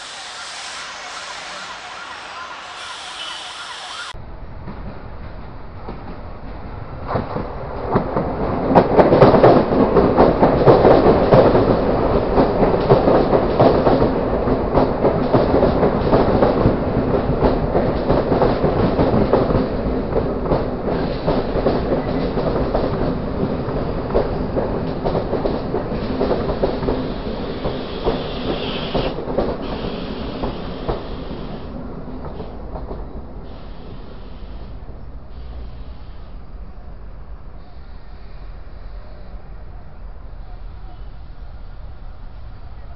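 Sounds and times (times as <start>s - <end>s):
train rumbling: 0.0s - 42.9s
train wheels clattering over joints: 7.1s - 33.2s.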